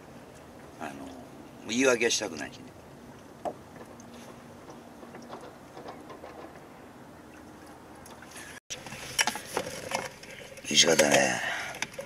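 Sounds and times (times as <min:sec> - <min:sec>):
wind and water wash: 0:00.0 - 0:12.0
sharp clicks and knocks: 0:03.4 - 0:06.7.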